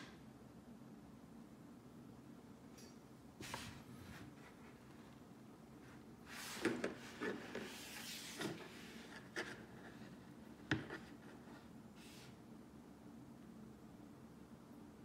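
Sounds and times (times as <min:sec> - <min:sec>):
plastic scraping on desk: 0:06.4 - 0:11.7.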